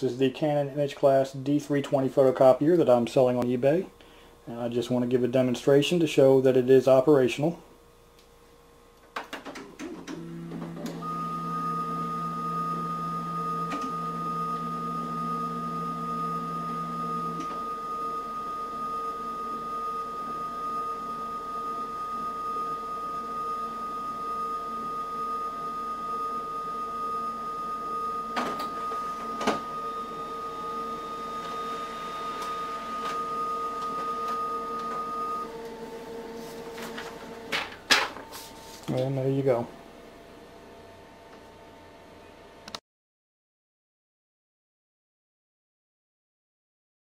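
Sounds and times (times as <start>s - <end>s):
photocopier humming: 9.7s - 41.5s
high whine: 10.2s - 40.0s.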